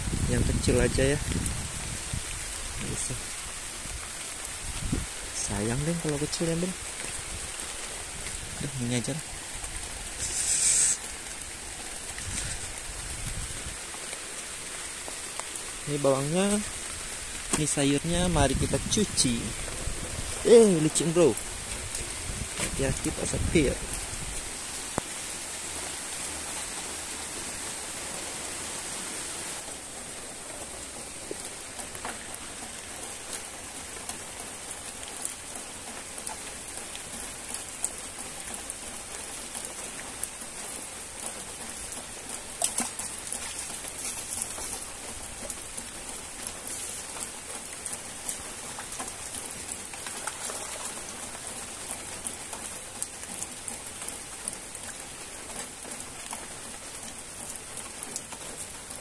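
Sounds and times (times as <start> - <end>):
steady rain: 0.0 - 59.0
raindrops ticking: 2.2 - 27.9, 29.6 - 59.0.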